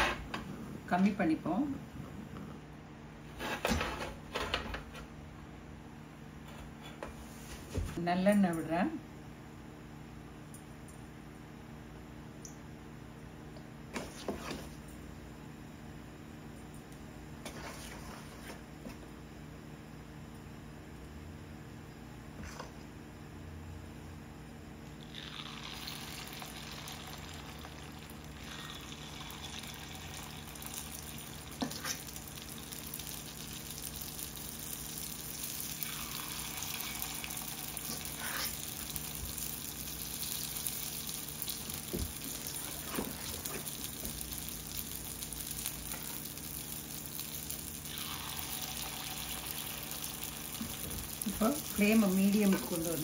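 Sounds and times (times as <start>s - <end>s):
oil sizzling in a pan: 25.0s - 53.0s.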